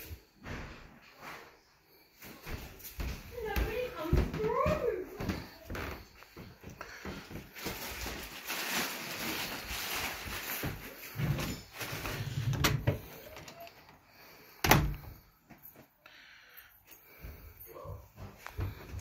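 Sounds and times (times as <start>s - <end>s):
rustling and handling: 4.8s - 14.0s.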